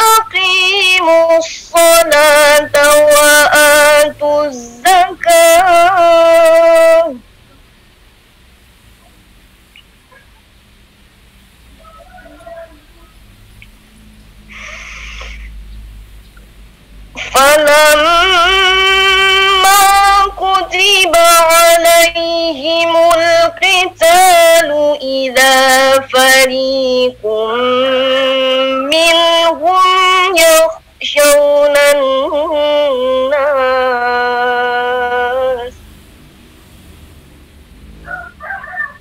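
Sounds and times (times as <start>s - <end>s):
woman chanting recitation: 0.0s - 7.2s, 17.2s - 35.8s
woman breathing: 14.5s - 15.6s.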